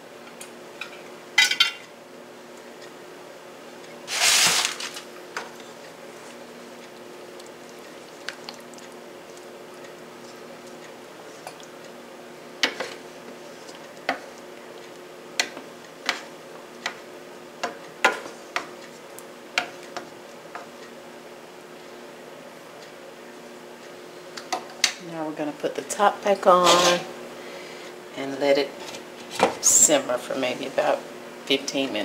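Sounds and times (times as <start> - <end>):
spatula scraping a metal skillet: 26.6 - 27.1.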